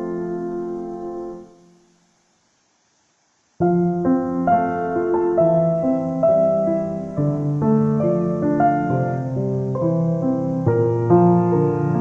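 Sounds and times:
piano music: 0.0 - 1.7, 3.6 - 12.0.

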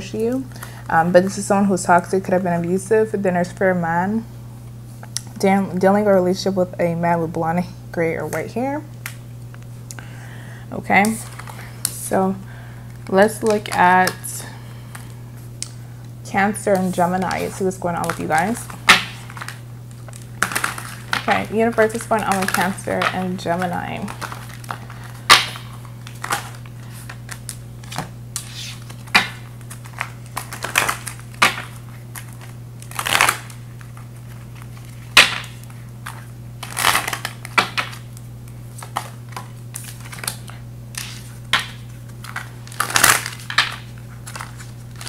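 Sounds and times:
steady low hum: 0.0 - 45.0
cards shuffling: 16.5 - 45.0.

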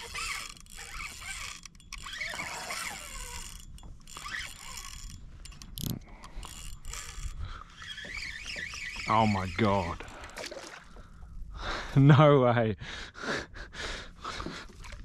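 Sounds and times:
fishing reel drag ratcheting: 0.0 - 10.5.

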